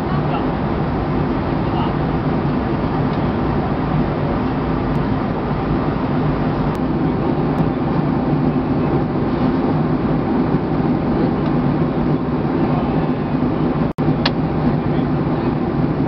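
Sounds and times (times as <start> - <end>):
airplane cabin noise: 0.0 - 16.0.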